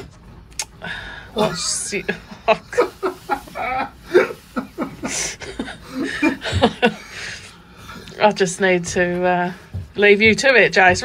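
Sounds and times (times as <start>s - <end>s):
people chuckling: 1.4s - 7.6s.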